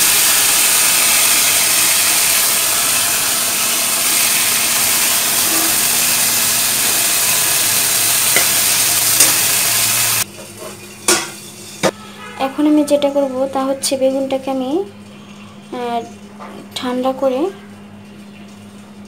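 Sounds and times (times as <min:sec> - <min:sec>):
oil sizzling in a pan: 0:00.0 - 0:12.0
spatula tapping: 0:08.3 - 0:09.5.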